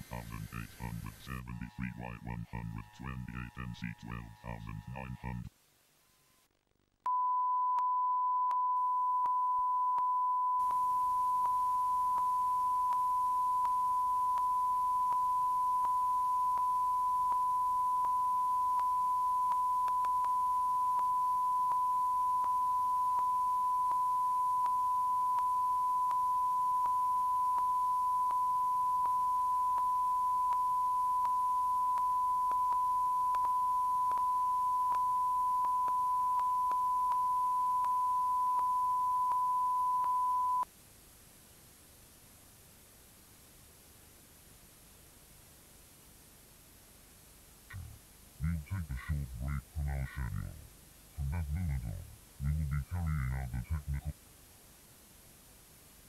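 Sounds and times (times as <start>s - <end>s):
high sine tone: 0.0s - 5.5s, 7.1s - 40.7s
faint hiss: 0.0s - 6.5s, 40.6s - 56.0s.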